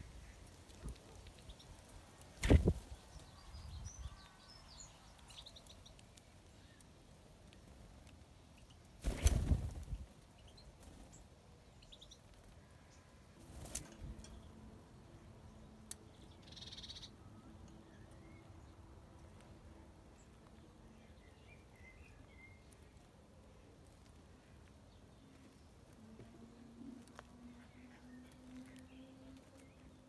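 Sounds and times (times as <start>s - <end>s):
small birds chirping: 0.0s - 30.0s
wings flapping whoosh: 2.4s - 2.8s, 9.0s - 10.0s.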